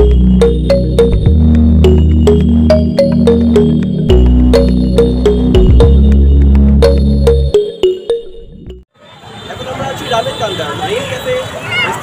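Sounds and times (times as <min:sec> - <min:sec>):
sharp beat hits: 0:00.0 - 0:08.1
synth bass chord: 0:00.0 - 0:08.8
plucked synth melody: 0:00.0 - 0:08.9.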